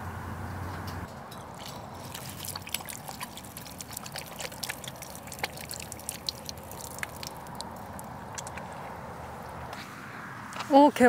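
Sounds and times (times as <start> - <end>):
water trickling and splashing on hands: 1.4 - 9.7.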